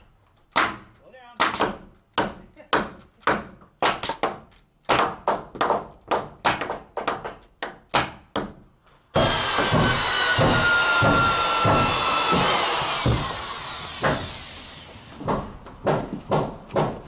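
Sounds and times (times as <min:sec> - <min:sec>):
nail gun firing: 0:00.5 - 0:01.9, 0:09.2 - 0:17.0
power drill whining: 0:09.2 - 0:15.2.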